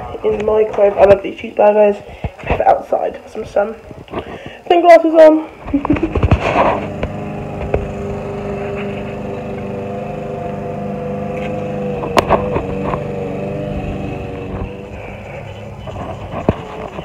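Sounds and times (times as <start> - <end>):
motor humming: 5.5 - 17.0.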